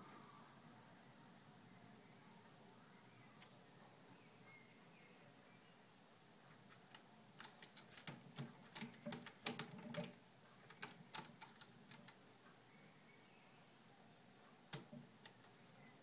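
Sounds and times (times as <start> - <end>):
cat scratching rope post: 6.6 - 12.2.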